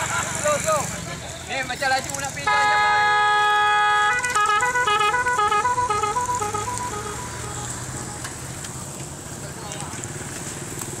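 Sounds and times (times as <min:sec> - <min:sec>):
low traffic rumble: 0:00.0 - 0:11.0
musical horn playing tune: 0:02.5 - 0:08.4.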